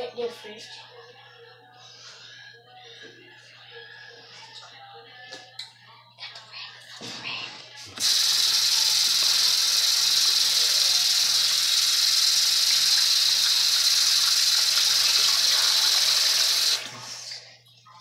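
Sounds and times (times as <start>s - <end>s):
faucet running into sink: 8.0s - 17.2s.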